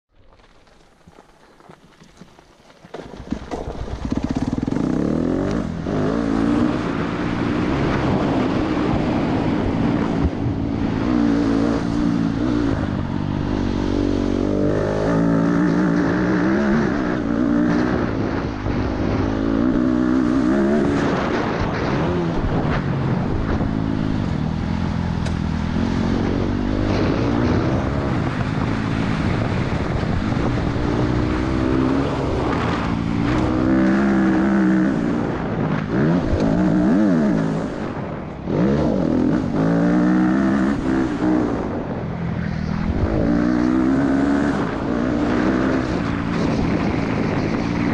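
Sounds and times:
dirt bike engine revving: 3.9 - 41.9, 42.6 - 47.9.

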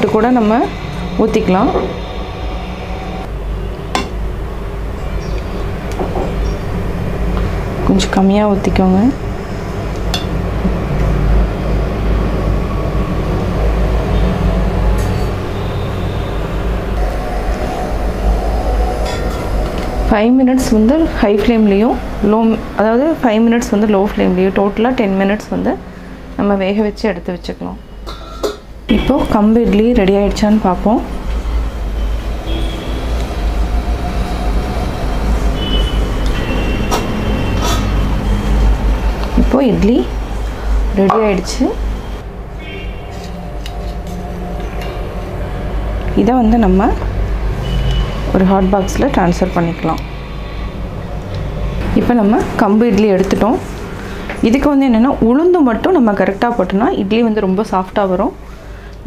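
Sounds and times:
steamer rumbling on gas stove: 0.0 - 26.4
low rumbling noise: 0.0 - 27.8, 28.7 - 58.4.

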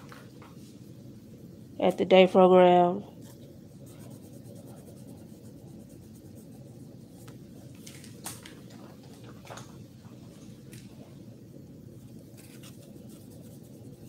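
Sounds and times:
low room hum: 0.0 - 14.0
pen scratching on paper: 3.8 - 7.0, 12.4 - 14.0.

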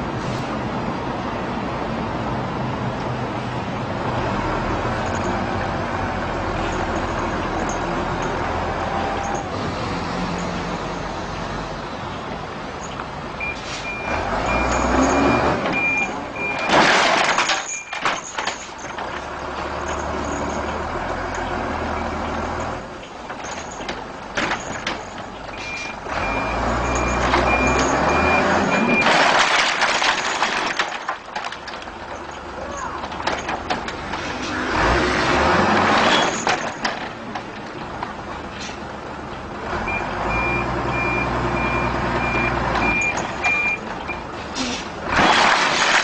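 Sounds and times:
high reversing beeps: 13.4 - 16.7, 25.6 - 29.1, 39.9 - 44.2
air brakes hissing: 13.6 - 13.9, 44.4 - 45.0.

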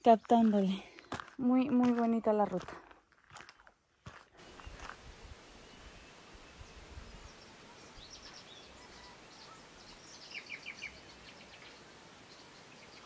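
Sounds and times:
birds chirping: 4.4 - 13.0
outdoor background hiss: 4.4 - 13.0.

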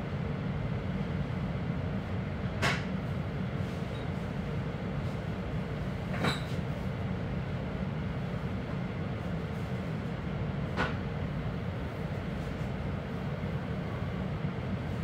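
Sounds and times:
train rumble from inside: 0.0 - 15.0.

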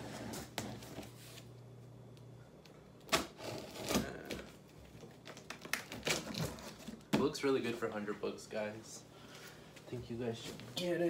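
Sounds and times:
tool slicing packing tape: 3.1 - 4.4.

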